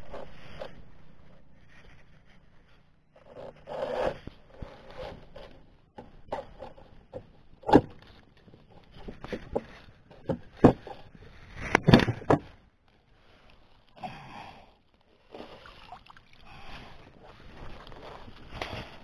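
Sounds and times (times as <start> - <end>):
water sloshing: 15.2 - 18.3.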